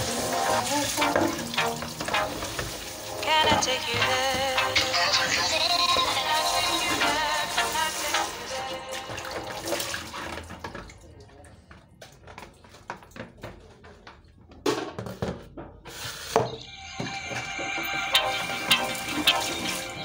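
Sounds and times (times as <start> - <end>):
pop background music: 0.0 - 10.1, 16.9 - 20.0
water splashing in sink: 0.0 - 12.5, 15.9 - 20.0.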